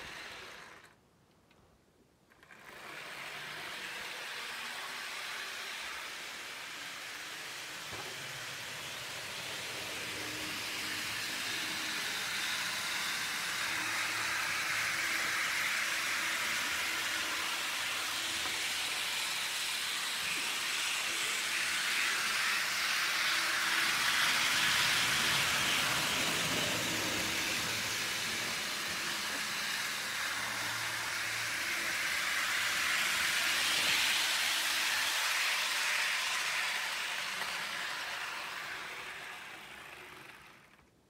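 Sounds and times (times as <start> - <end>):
model train motor whirring: 0.0 - 1.0, 2.3 - 41.0.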